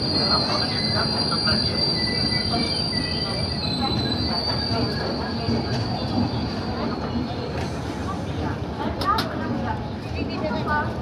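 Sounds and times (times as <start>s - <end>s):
high-pitched wheel squeal: 0.0s - 7.3s
train coaches rumbling on rails: 0.0s - 11.0s.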